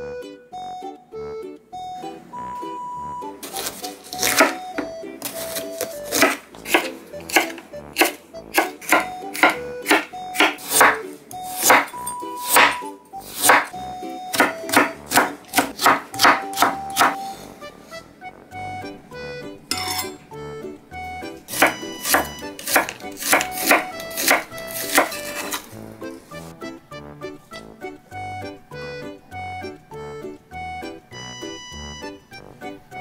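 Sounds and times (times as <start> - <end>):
background music: 0.0 - 33.0
knife chopping on wooden board: 3.4 - 17.4, 21.5 - 25.8.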